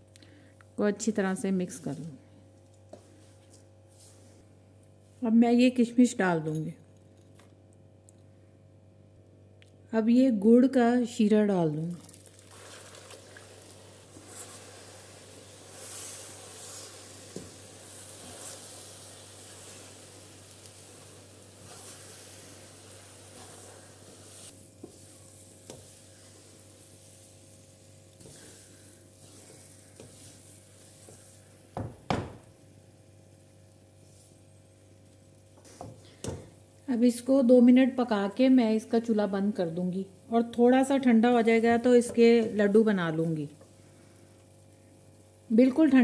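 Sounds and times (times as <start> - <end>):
syrup sizzling in hot fat: 12.0 - 36.0
wooden spatula stirring and scraping: 12.5 - 31.7.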